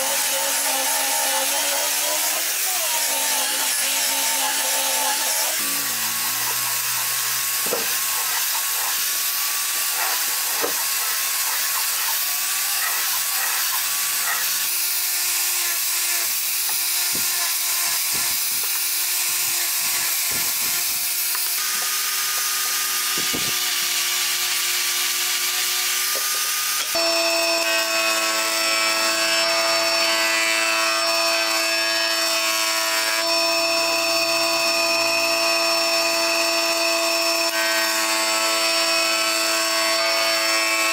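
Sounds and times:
angle grinder whining: 0.0s - 40.9s
planer-jointer humming: 0.0s - 40.9s
sanding wood hiss: 5.5s - 14.9s.

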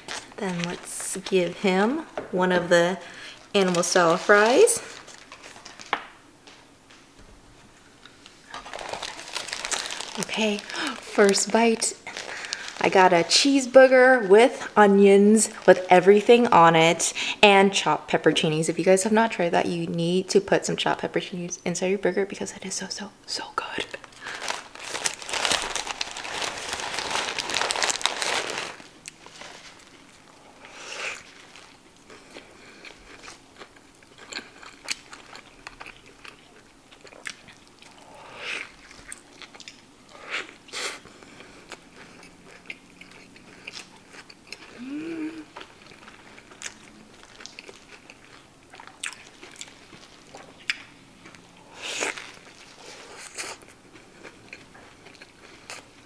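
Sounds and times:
paper wrapper crinkling: 0.0s - 1.7s, 3.4s - 6.1s, 8.5s - 13.8s, 23.8s - 30.2s, 31.2s - 31.8s
biting and wet chewing: 29.8s - 56.0s.

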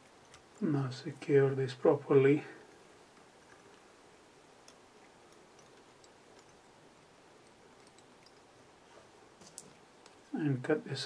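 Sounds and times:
faint thread winding ticks: 4.6s - 8.8s.

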